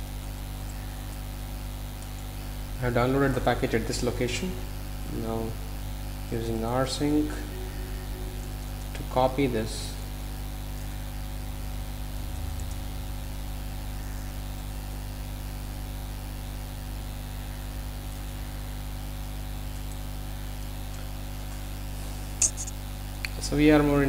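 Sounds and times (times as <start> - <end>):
electrical hum: 0.0 - 24.0
even hiss: 2.9 - 10.3.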